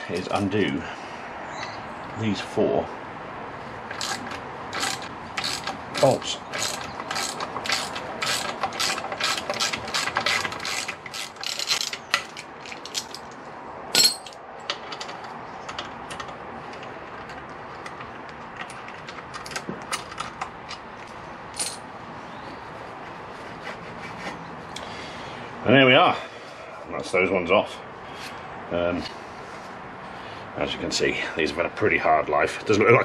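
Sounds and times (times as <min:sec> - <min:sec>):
ratchet wrench clicking: 0:03.9 - 0:13.1
metal clinks: 0:13.9 - 0:15.2, 0:21.5 - 0:21.9.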